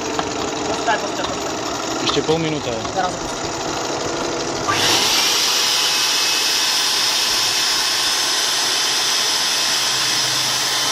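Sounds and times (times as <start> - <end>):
turbojet spinning with air hiss: 3.0 - 10.9.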